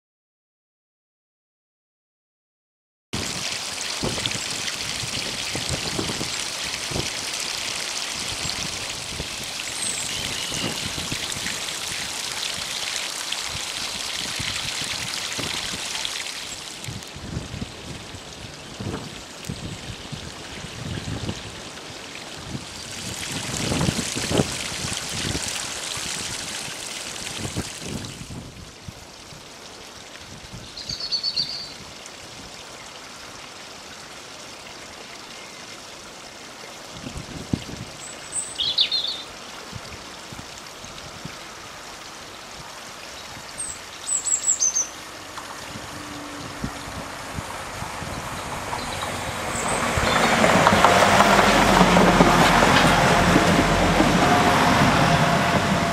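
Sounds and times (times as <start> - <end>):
open-air hiss with low rumbles: 3.2 - 55.9
small birds chirping: 30.8 - 31.7, 38.0 - 39.3, 43.2 - 45.0
faint low train hum: 45.0 - 55.9.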